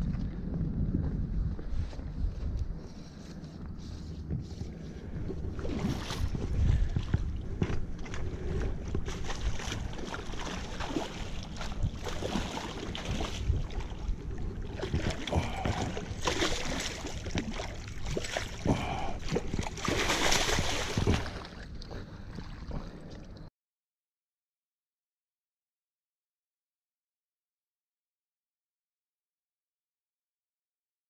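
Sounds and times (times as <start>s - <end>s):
wind rumbling on microphone: 0.0s - 23.5s
landing net sloshing through water: 4.2s - 23.5s
fish splashing in water: 5.0s - 23.1s.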